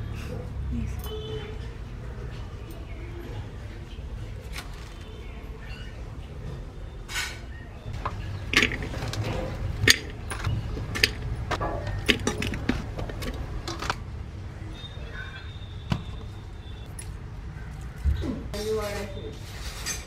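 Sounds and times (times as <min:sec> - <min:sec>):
vegetables clattering into metal pot: 0:08.0 - 0:14.0.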